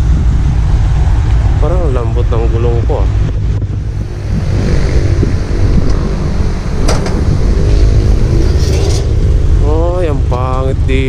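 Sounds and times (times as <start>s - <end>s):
wind buffeting microphone: 0.0s - 11.0s
sharp knock: 6.8s - 7.3s.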